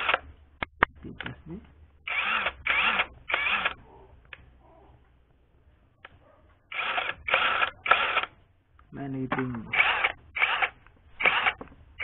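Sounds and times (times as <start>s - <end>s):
impact wrench motor spinning up: 2.1s - 3.8s, 6.7s - 8.3s, 9.7s - 11.6s.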